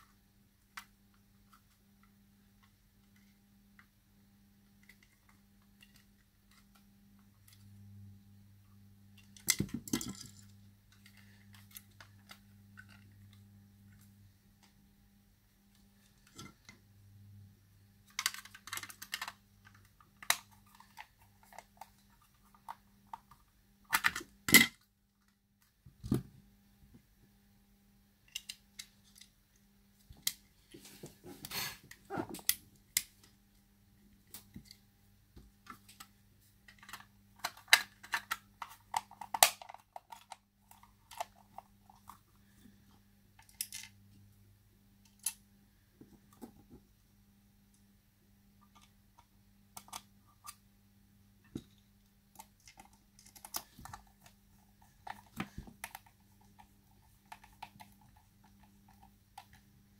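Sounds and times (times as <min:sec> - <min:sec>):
faint steady hum: 0:00.0 - 0:59.9
plastic parts clicking together: 0:18.0 - 0:25.3, 0:28.2 - 0:29.3, 0:36.7 - 0:42.2, 0:43.4 - 0:44.0, 0:48.6 - 0:50.6, 0:51.5 - 0:59.6.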